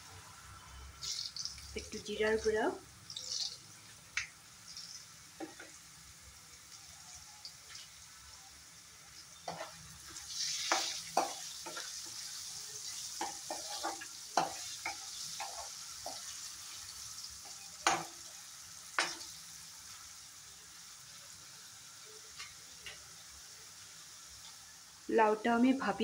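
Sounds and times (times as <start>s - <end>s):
potatoes sizzling in hot oil: 0.0s - 26.0s.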